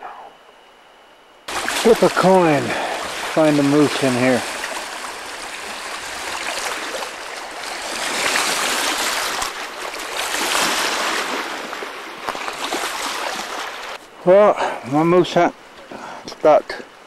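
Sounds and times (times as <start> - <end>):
small waves washing onto rocks: 1.5 - 14.0.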